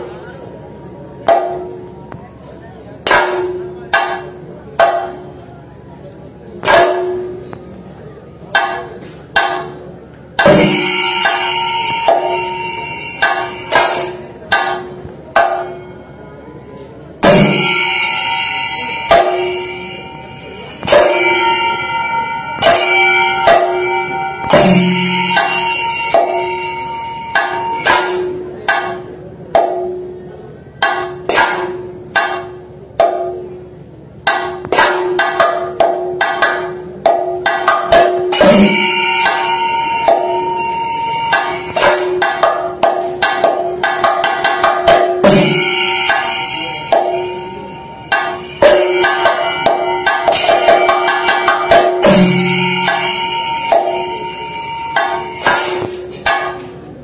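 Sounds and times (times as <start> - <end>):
drums beaten with sticks: 1.2 - 2.3, 3.0 - 5.5, 6.6 - 7.7, 8.4 - 16.0, 17.1 - 57.0
hand cymbals ringing: 8.4 - 30.0, 30.8 - 57.0.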